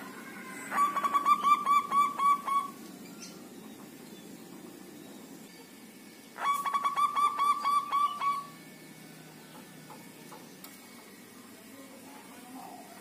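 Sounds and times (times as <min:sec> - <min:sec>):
dove cooing: 0:00.0 - 0:04.0, 0:06.4 - 0:08.6.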